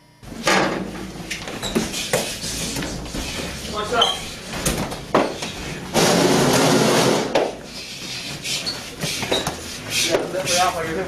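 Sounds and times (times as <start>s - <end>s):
people scuffling: 1.4s - 5.9s, 7.4s - 11.0s.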